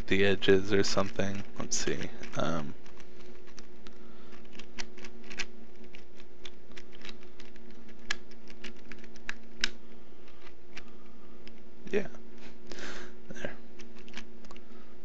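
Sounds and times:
steady low hum: 0:00.0 - 0:15.0
plastic puzzle clicking: 0:04.3 - 0:11.6, 0:13.8 - 0:14.6.

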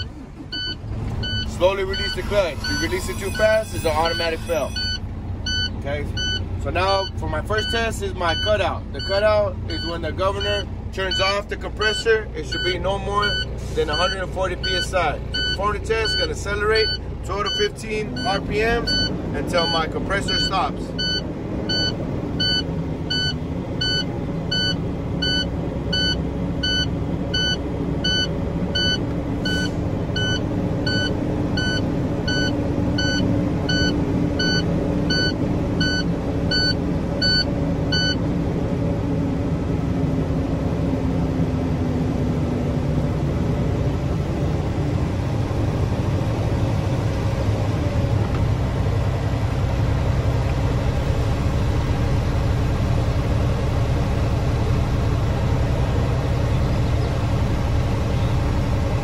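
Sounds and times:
warning beeps: 0:00.0 - 0:38.2
diesel engine running at high revs: 0:00.0 - 0:59.0.

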